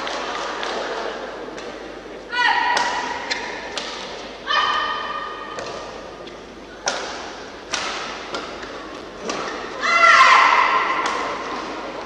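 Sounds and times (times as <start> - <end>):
racket hitting shuttlecock: 2.7 - 4.3, 5.4 - 9.8, 10.4 - 11.8.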